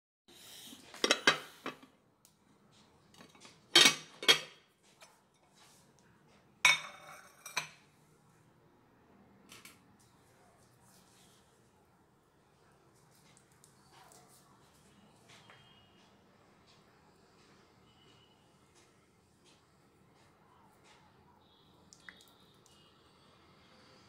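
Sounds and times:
glass dish clinks and knocks: 0:06.7 - 0:07.8.

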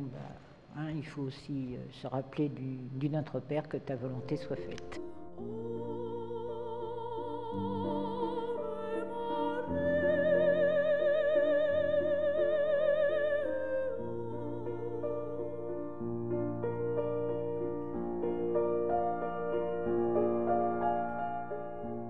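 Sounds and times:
high solo voice singing: 0:05.0 - 0:15.7.

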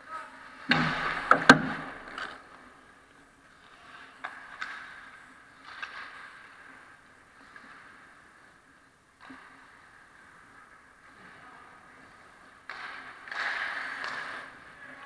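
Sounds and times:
skates scraping on ice: 0:00.3 - 0:15.0
stick hitting puck: 0:00.7 - 0:02.4, 0:04.2 - 0:06.5, 0:12.6 - 0:14.6.

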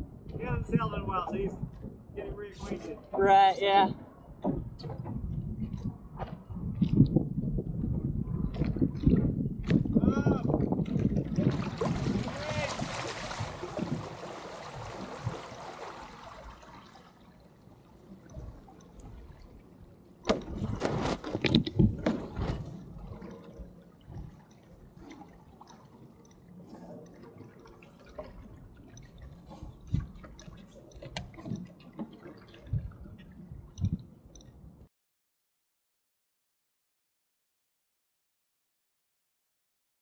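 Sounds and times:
water lapping against boat hull: 0:00.0 - 0:34.9
splashing and knocks: 0:10.5 - 0:17.2, 0:20.2 - 0:23.5
small drips and ticks: 0:15.2 - 0:20.2, 0:22.8 - 0:34.9.

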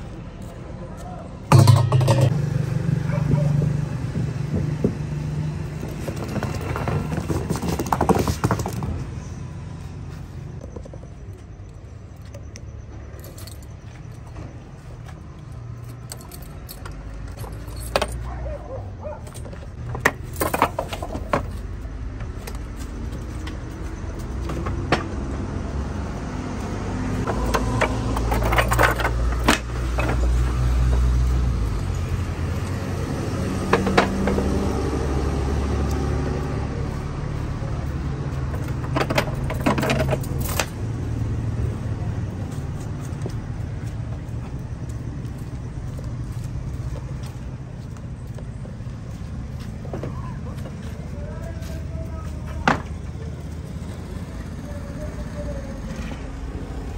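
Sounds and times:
low vehicle rumble: 0:00.0 - 0:56.9
metal clicks and knocks: 0:01.5 - 0:02.3
keys jangling: 0:13.2 - 0:14.4, 0:15.7 - 0:19.6.

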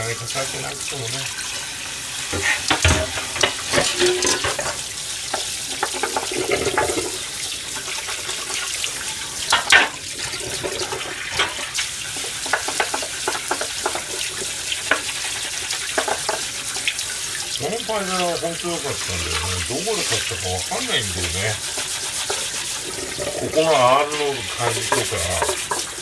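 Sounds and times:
tap water running into sink: 0:00.0 - 0:26.0
dishes being scrubbed: 0:00.2 - 0:26.0
dishes clattering: 0:02.3 - 0:08.7, 0:09.4 - 0:15.2, 0:15.8 - 0:16.5, 0:21.6 - 0:26.0.

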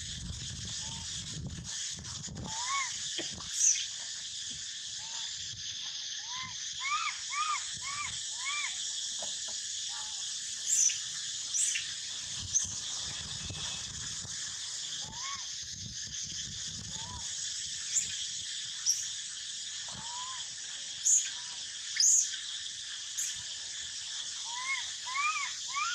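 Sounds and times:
high hum of insects: 0:00.0 - 0:25.9
monkey shrill squeaks: 0:24.5 - 0:25.9.

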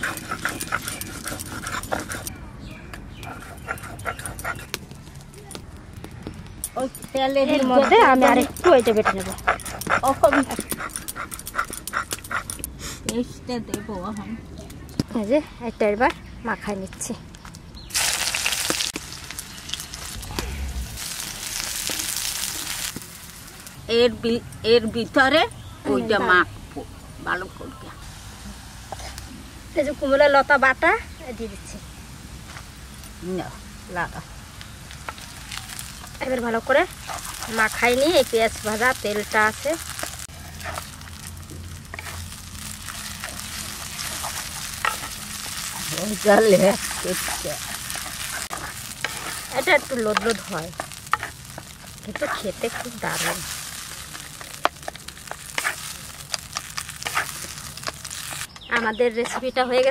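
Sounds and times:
spatula scraping a wok: 0:00.0 - 0:02.3, 0:36.8 - 0:58.5
onions sizzling in hot oil: 0:17.8 - 0:58.6.

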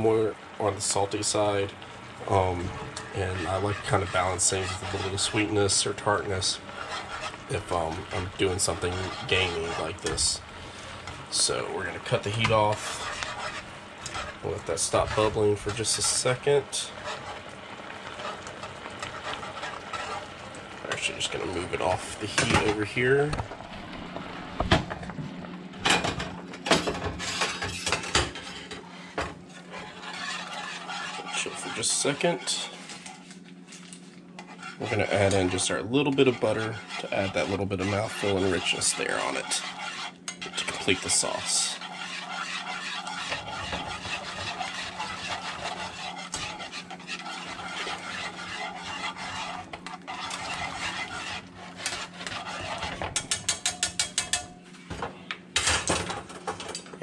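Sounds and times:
steady low hum: 0:00.0 - 0:56.9
wire whisk scraping a skillet: 0:00.8 - 0:22.9, 0:26.8 - 0:54.6.

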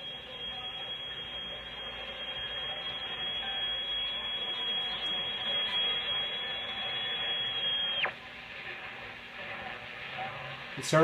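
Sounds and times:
high-pitched whistle: 0:00.0 - 0:08.1
radio static and hiss: 0:00.0 - 0:11.0.

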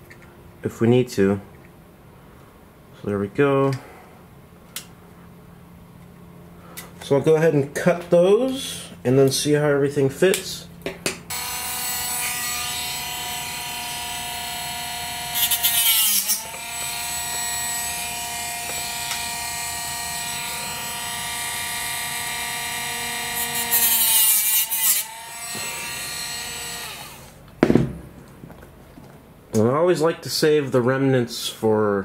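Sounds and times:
rotary tool cutting rods: 0:11.3 - 0:27.4
rotary tool whining: 0:11.3 - 0:27.4.

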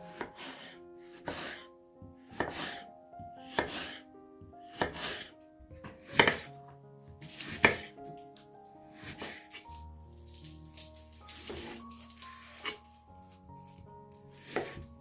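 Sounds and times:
knife slicing potato on cutting board: 0:00.1 - 0:01.6, 0:02.3 - 0:02.8, 0:03.4 - 0:04.0, 0:04.7 - 0:05.3, 0:05.9 - 0:06.5, 0:07.2 - 0:08.2, 0:08.9 - 0:09.7, 0:11.3 - 0:12.9, 0:13.7 - 0:14.9.

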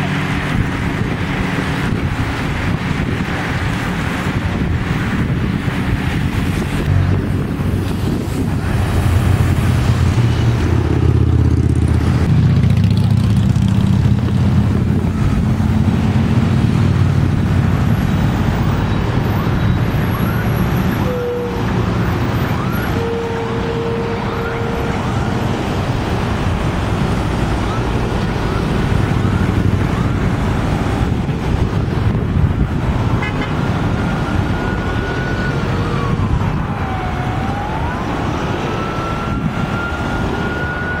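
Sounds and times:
vehicles passing on highway: 0:00.0 - 0:41.0
siren: 0:14.4 - 0:41.0
car horn toots: 0:21.0 - 0:21.8, 0:22.8 - 0:25.5, 0:33.2 - 0:33.6.

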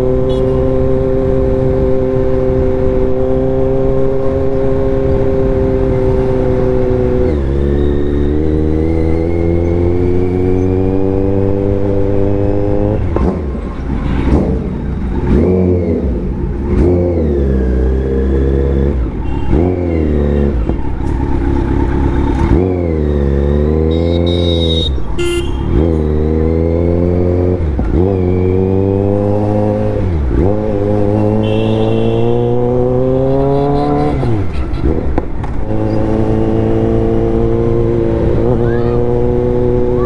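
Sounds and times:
motorcycle engine revving: 0:00.0 - 0:40.0.

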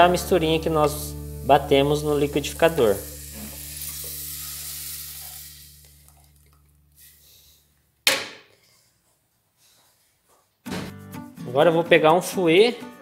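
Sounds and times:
frying sizzle in a pot: 0:00.8 - 0:07.7
liquid pouring: 0:02.3 - 0:07.0.

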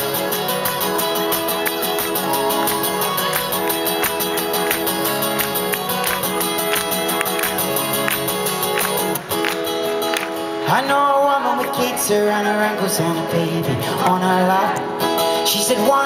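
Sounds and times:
crowd clapping along: 0:00.0 - 0:12.1
acoustic guitar strumming: 0:00.0 - 0:16.0.

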